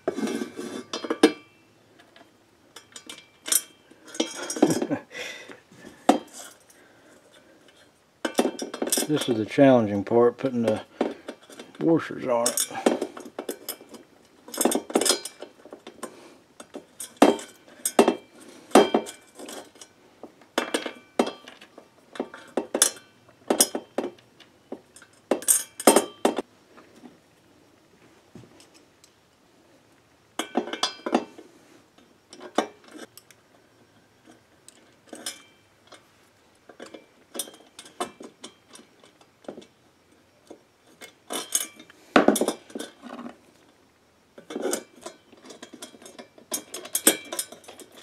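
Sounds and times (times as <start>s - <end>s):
washers clinking against steel tube: 0.0s - 5.0s, 6.1s - 9.6s, 10.5s - 20.0s, 20.6s - 26.4s, 34.2s - 36.1s, 36.7s - 39.7s, 40.4s - 43.3s, 44.4s - 48.0s.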